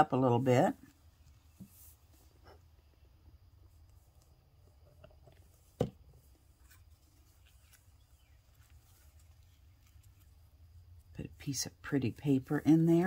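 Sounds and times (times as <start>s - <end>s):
fabric and paper rustling: 6.3s - 10.5s.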